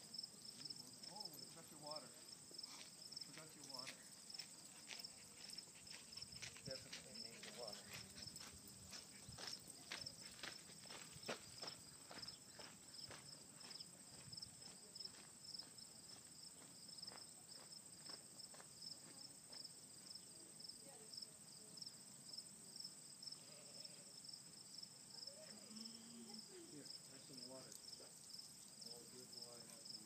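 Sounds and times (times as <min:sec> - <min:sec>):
insects chirring: 0:00.0 - 0:30.0
faint distant voice: 0:00.8 - 0:10.5, 0:25.1 - 0:28.2.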